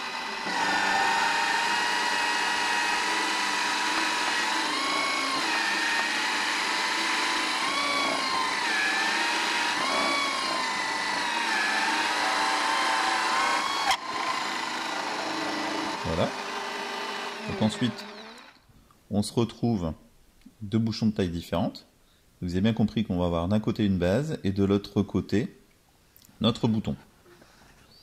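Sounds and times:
drill motor whine: 0:00.0 - 0:18.6.

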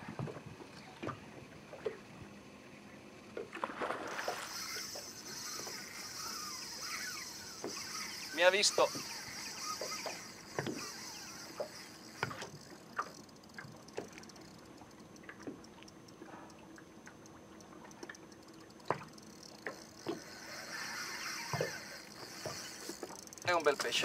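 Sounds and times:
water lapping against boat hull: 0:00.0 - 0:24.0
water splashes: 0:03.4 - 0:14.2.

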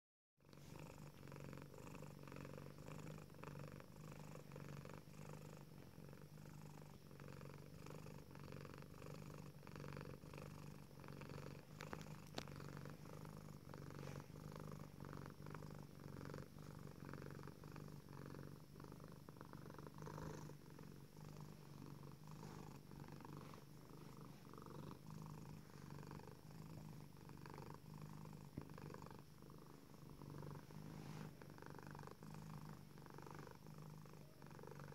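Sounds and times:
cat purring: 0:00.4 - 0:34.9
faint ticks: 0:11.8 - 0:12.6.

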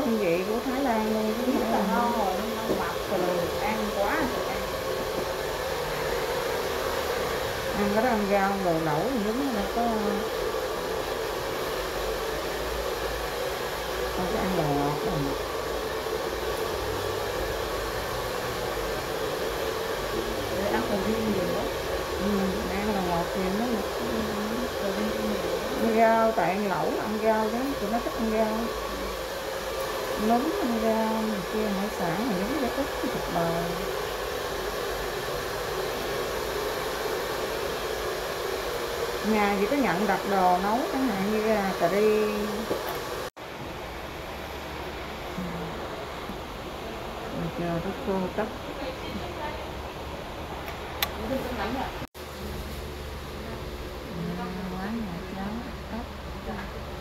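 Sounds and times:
person speaking: 0:00.0 - 0:05.2, 0:20.2 - 0:29.2
hair dryer running: 0:00.0 - 0:57.0.

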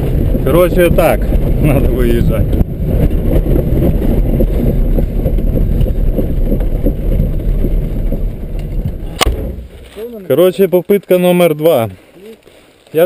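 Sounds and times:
car engine rumbling under load: 0:02.4 - 0:10.4.

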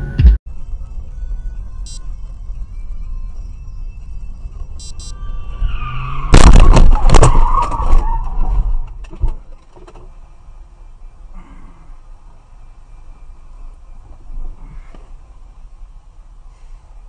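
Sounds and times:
tyres squealing in a skid: 0:05.1 - 0:09.2
car crash: 0:05.2 - 0:10.1
crunching impacts: 0:05.7 - 0:10.1.

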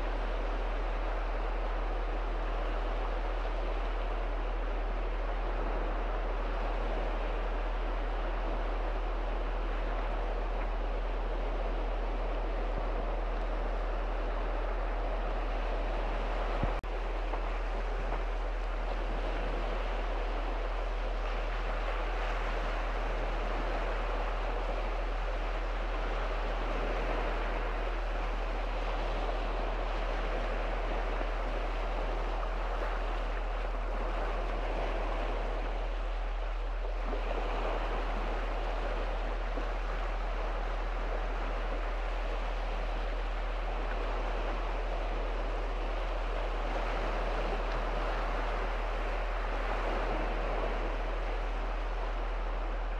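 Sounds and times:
small waves breaking on shore: 0:00.0 - 0:52.9.

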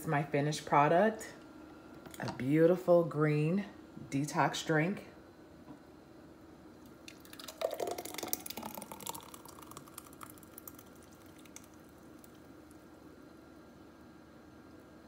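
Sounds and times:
thick smoothie pouring: 0:06.8 - 0:13.0.

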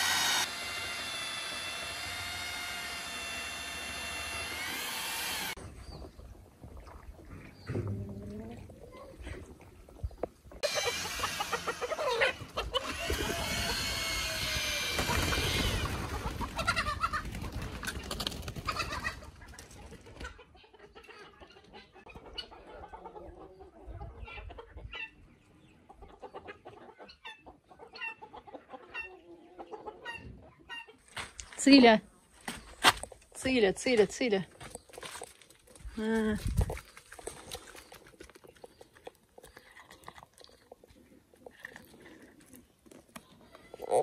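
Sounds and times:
chickens clucking and squawking: 0:10.5 - 0:31.1.

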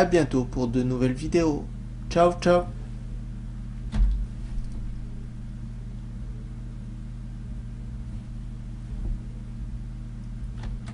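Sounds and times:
low hum: 0:00.0 - 0:10.9
soft thump: 0:08.9 - 0:09.4.

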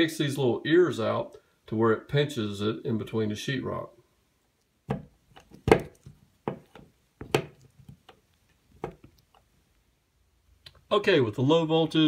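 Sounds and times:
plastic bracket knocking: 0:04.9 - 0:08.1, 0:08.8 - 0:09.1.

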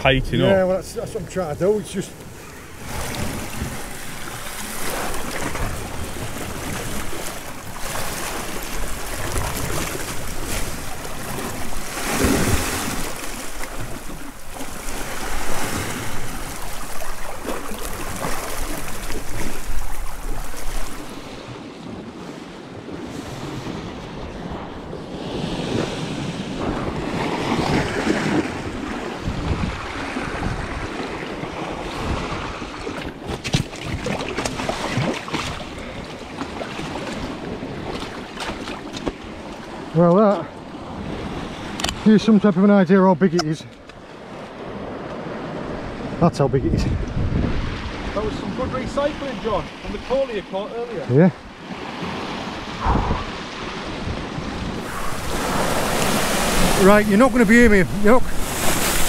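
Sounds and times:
waves washing against rocks: 0:01.7 - 0:21.5, 0:51.6 - 0:59.0
wind buffeting microphone: 0:22.8 - 0:33.3, 0:44.6 - 0:49.9, 0:51.6 - 0:59.0.

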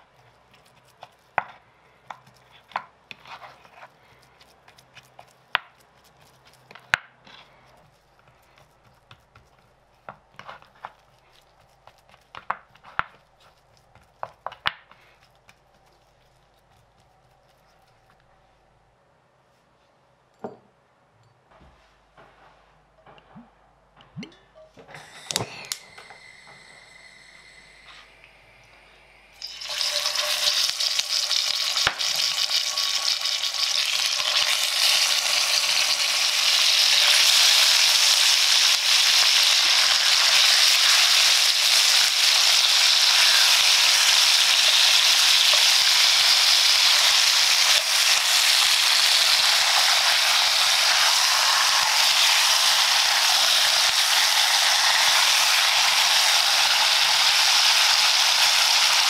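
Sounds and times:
meat sizzling in hot oil: 0:29.2 - 0:59.0.

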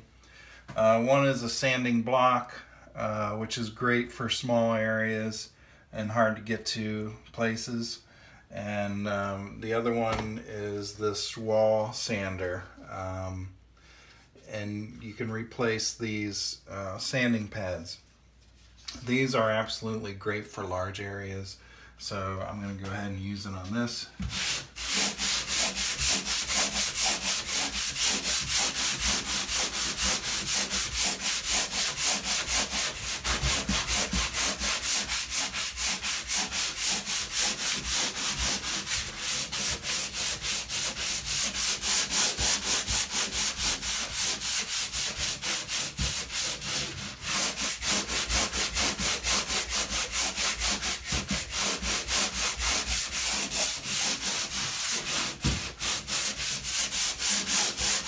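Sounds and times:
sanding pad scrubbing drywall: 0:22.6 - 0:58.0.

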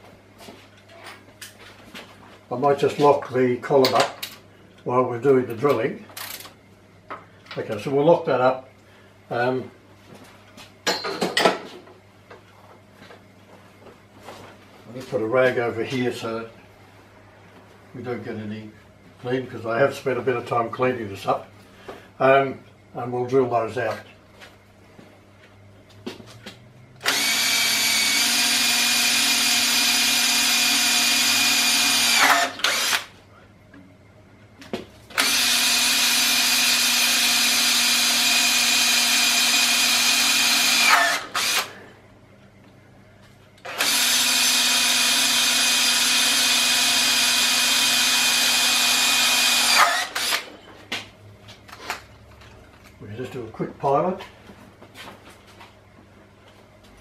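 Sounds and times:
cordless drill whine: 0:27.0 - 0:33.1, 0:35.2 - 0:41.8, 0:43.7 - 0:50.5.

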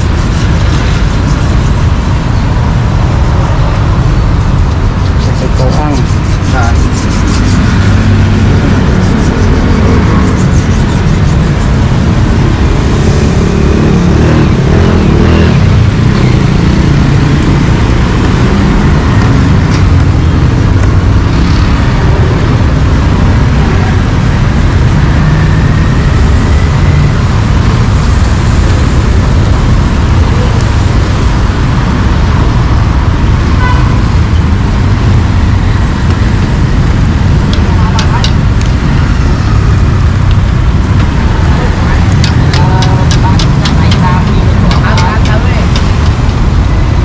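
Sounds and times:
road traffic rumble: 0:00.0 - 0:47.0.

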